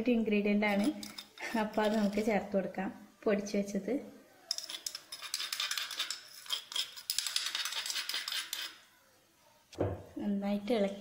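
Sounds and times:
metal spoon scraping a metal pan: 0.7 - 2.3, 4.5 - 8.8.

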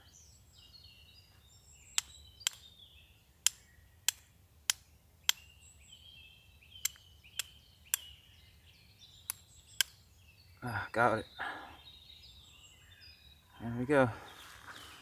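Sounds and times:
flint and steel clicks: 1.9 - 2.7, 3.4 - 5.5, 6.8 - 8.2, 9.2 - 10.0.

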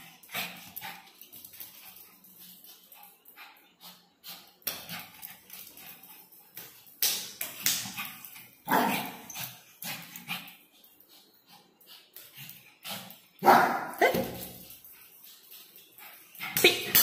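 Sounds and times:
small dog barking: 8.7 - 9.2, 13.4 - 14.3.

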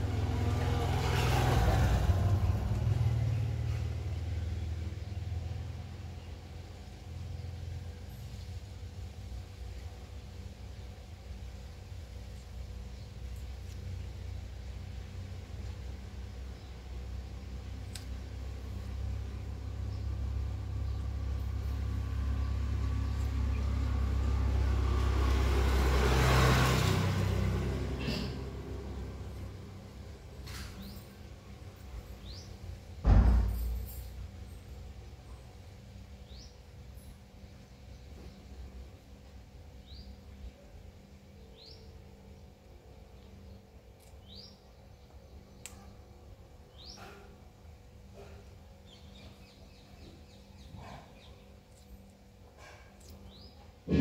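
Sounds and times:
vehicle engine running: 0.0 - 35.4.

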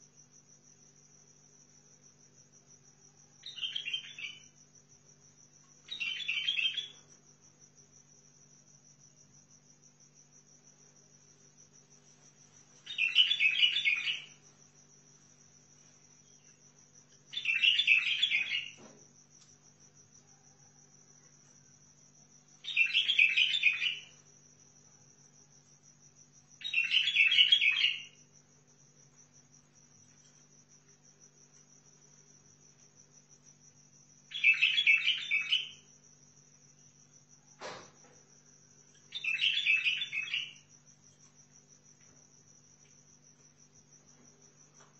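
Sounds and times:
bird song phrases: 3.4 - 4.5, 5.9 - 7.1, 12.8 - 14.4, 17.2 - 18.9, 22.6 - 24.2, 26.6 - 28.3, 34.3 - 35.9, 38.9 - 40.7.

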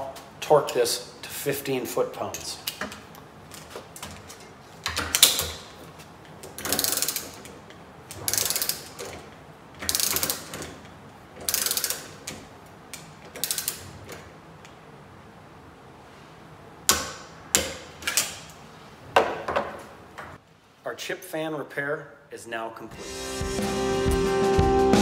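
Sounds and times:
torque wrench clicks: 6.6 - 7.4, 8.3 - 9.0, 9.8 - 10.6, 11.5 - 12.1, 12.9 - 13.9
hand ratchet clicking: 6.6 - 9.2, 9.8 - 10.8, 11.4 - 14.2.

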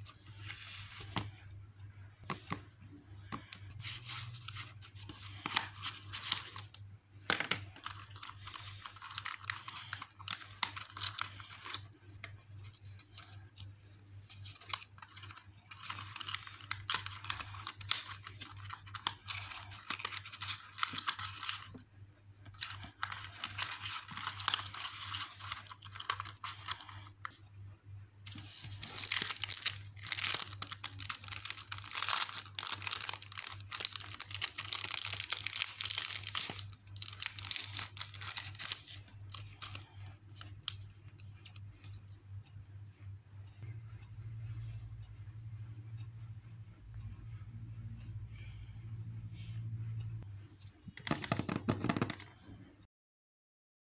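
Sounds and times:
low steady hum: 0.0 - 52.8
plastic wrapping crinkling: 3.4 - 13.6, 14.2 - 21.9, 22.5 - 27.4, 28.3 - 42.0.

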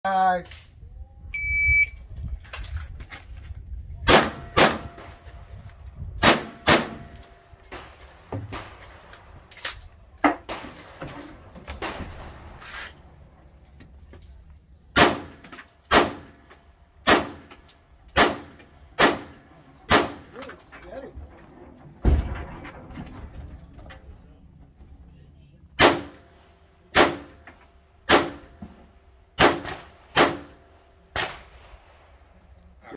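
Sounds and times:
pistol shots: 15.0 - 16.4, 17.0 - 17.5, 18.2 - 20.2, 25.8 - 26.2, 26.9 - 27.4, 28.1 - 28.5, 29.4 - 30.6.

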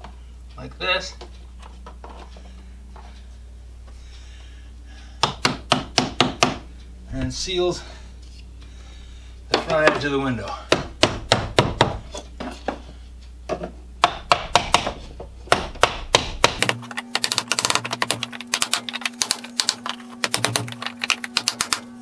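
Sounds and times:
steady low hum: 0.0 - 22.0
hammer tapping wood: 5.2 - 6.6, 9.5 - 12.0, 14.0 - 20.8.

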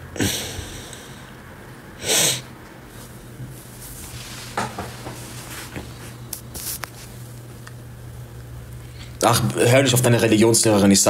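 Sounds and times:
steady low hum: 0.0 - 11.0
loud sniff: 2.0 - 2.5.

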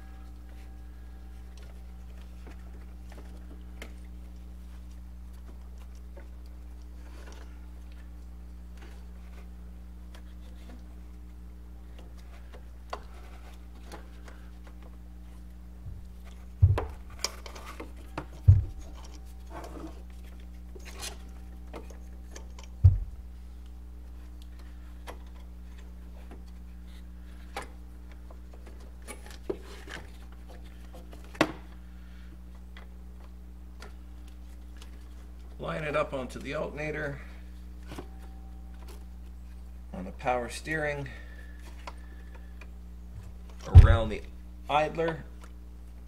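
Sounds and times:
steady low hum: 0.0 - 46.0
dull thumps: 15.8 - 19.1, 22.8 - 23.3, 43.1 - 44.3.

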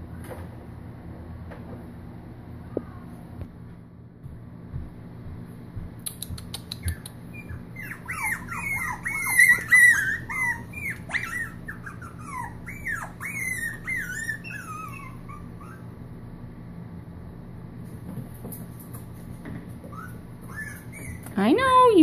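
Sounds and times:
puppy whining: 6.4 - 16.0, 19.8 - 21.9.

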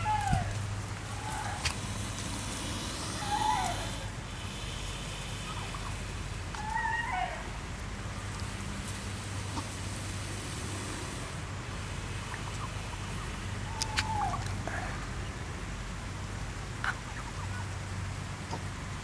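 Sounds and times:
turkey call: 0.0 - 7.5, 12.3 - 15.0
low hum and hiss: 0.0 - 19.0.

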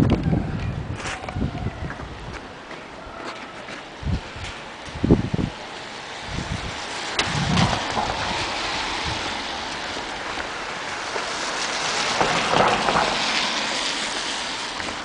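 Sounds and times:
car tyres hissing on wet street: 3.7 - 15.0.

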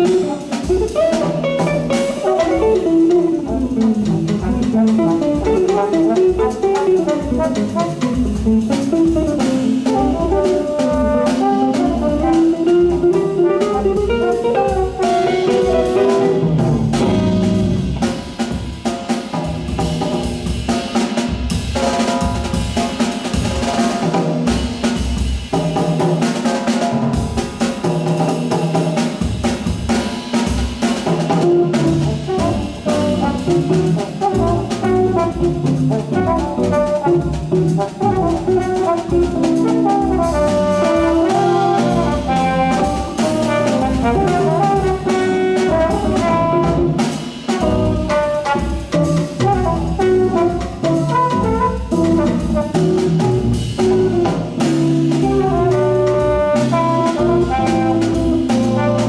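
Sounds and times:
electric guitar melody: 0.0 - 18.4, 31.4 - 47.0, 47.6 - 59.0
drum kit: 0.0 - 59.0.

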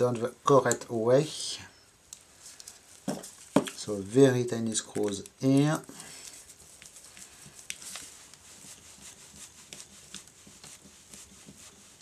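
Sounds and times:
faint clicks and rustling: 2.1 - 3.9, 4.5 - 8.8.

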